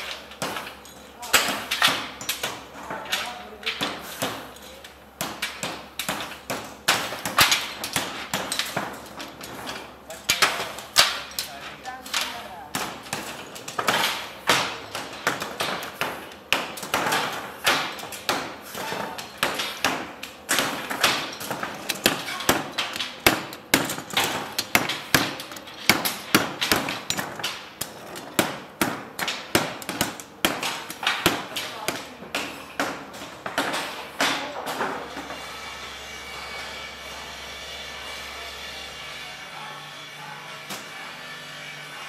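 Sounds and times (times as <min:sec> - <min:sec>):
metal parts knocking on wood: 0:05.4 - 0:35.0.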